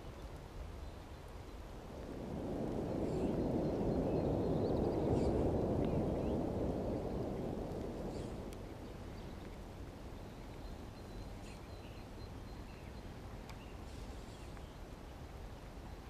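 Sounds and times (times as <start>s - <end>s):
faint bird chirps: 10.2s - 14.8s.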